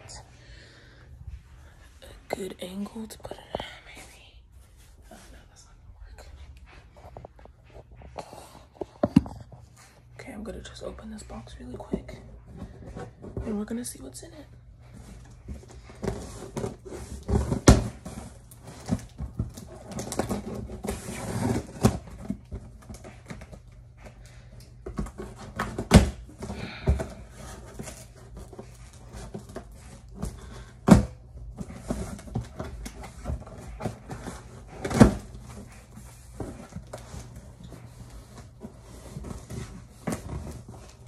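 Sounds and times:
cardboard rustling and scraping: 0:14.9 - 0:41.0.

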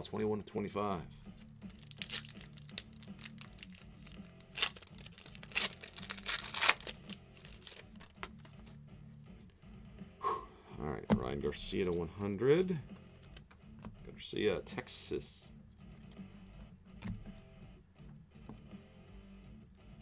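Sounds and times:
wrapper tearing and crinkling: 0:01.7 - 0:08.8.

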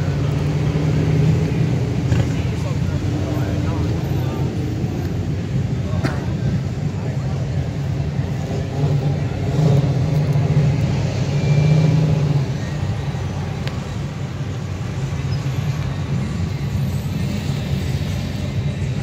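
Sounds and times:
cars passing slowly: 0:00.0 - 0:19.0.

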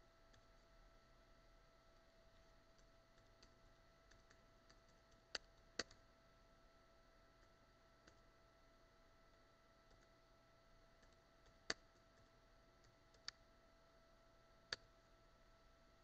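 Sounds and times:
faint steady hum: 0:00.0 - 0:16.0
typing on computer keyboard: 0:02.8 - 0:06.0, 0:11.0 - 0:13.4.

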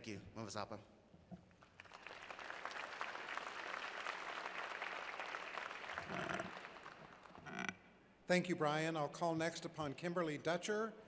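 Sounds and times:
audience applauding: 0:01.6 - 0:07.4.

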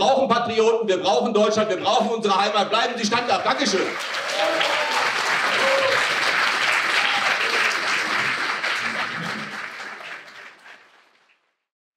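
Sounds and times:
audience applauding: 0:03.0 - 0:11.5.

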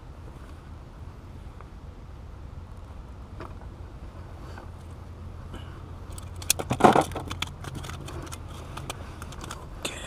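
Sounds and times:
steady low rumble: 0:00.0 - 0:10.0
crackling handling clicks: 0:06.0 - 0:09.8
handling rustle: 0:06.1 - 0:09.8.

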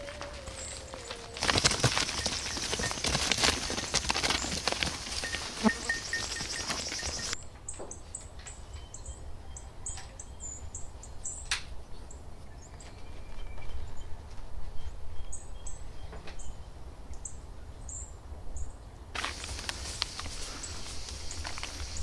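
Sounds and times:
small birds chirping: 0:00.4 - 0:14.1, 0:19.3 - 0:22.0.

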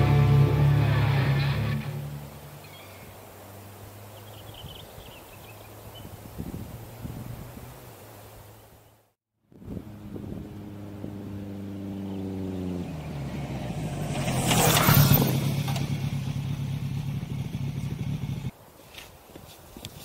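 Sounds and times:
motorcycle engine running: 0:00.0 - 0:02.2, 0:09.6 - 0:18.5.

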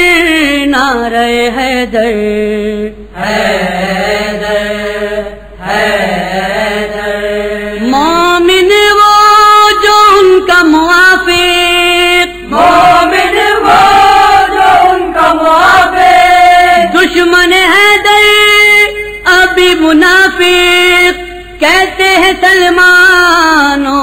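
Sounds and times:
voices chanting a lament: 0:01.4 - 0:19.0.

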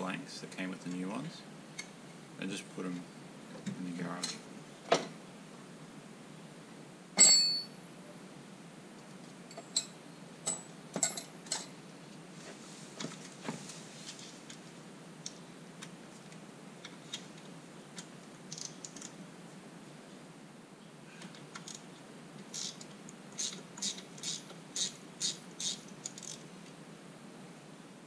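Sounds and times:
metal tools clinking: 0:07.2 - 0:07.7, 0:10.5 - 0:11.7.

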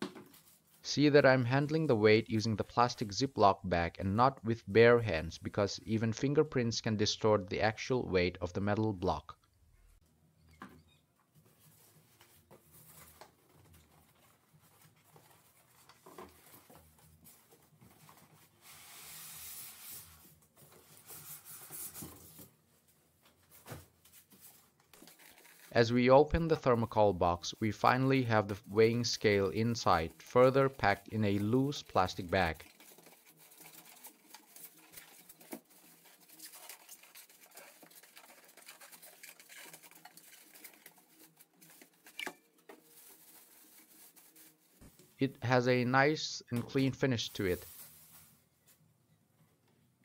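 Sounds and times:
polystyrene foam rubbing: 0:11.6 - 0:22.5, 0:23.9 - 0:42.2, 0:42.8 - 0:44.9, 0:47.2 - 0:48.6
plastic bag crinkling: 0:24.9 - 0:25.8, 0:28.6 - 0:44.7
cardboard carton rustling: 0:30.4 - 0:44.9.

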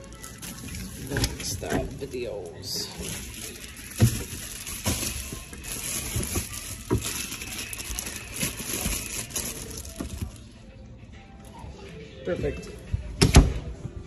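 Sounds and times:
plastic bags rustling: 0:00.0 - 0:10.6.

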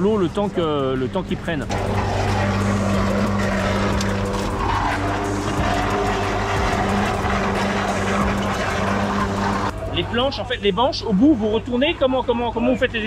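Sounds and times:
machine engine humming: 0:01.6 - 0:11.1
river water flowing: 0:01.7 - 0:10.0.

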